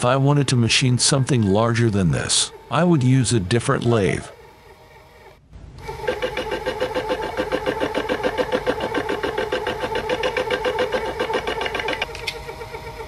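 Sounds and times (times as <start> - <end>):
lathe spindle humming and pulsing: 4.3 - 13.0.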